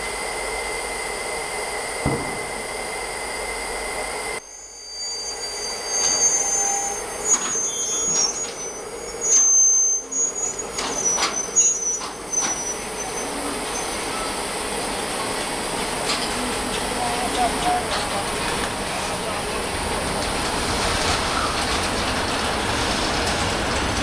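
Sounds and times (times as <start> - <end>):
train wheels squealing: 4.4 - 14.8, 21.1 - 23.0
wheels clicking over rails: 15.1 - 24.0.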